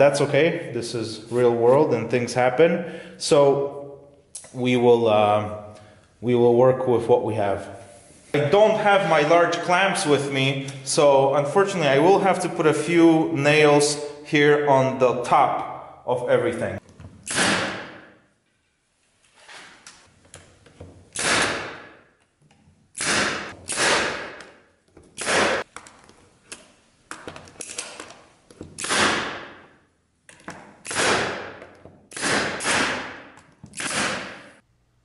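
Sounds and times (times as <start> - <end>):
nail gun shots: 17.2 - 18.1, 21.1 - 22.0, 23.0 - 25.6, 28.8 - 29.6, 30.8 - 34.6.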